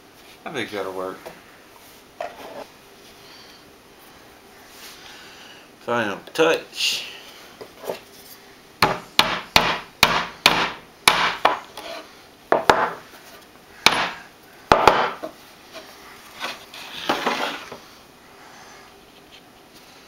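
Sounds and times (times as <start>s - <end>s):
wooden frame scraping tabletop: 2.2s - 2.7s, 16.4s - 17.8s.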